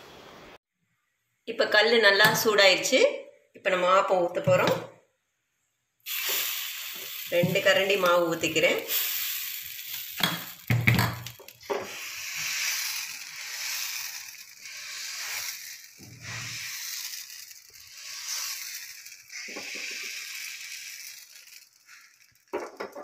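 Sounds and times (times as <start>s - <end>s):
batter sizzling in a pan: 6.0s - 22.4s.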